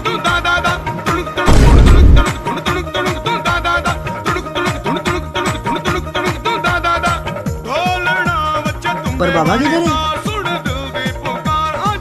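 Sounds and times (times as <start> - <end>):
music with steady drum beat: 0.0 - 12.0
loud low boom: 1.5 - 2.6.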